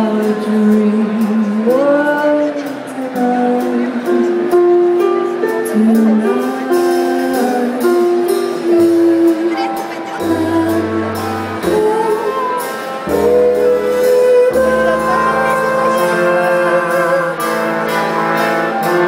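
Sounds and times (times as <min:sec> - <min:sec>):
big band playing: 0:00.0 - 0:19.0
low bass notes: 0:10.2 - 0:19.0.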